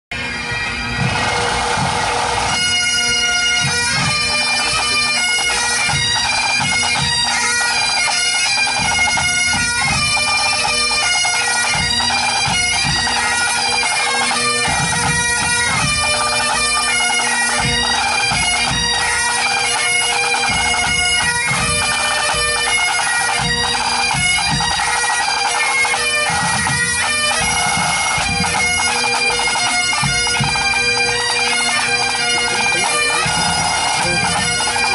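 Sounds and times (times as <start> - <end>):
bagpipes playing: 0.1 - 34.9
drums beating: 0.1 - 34.9.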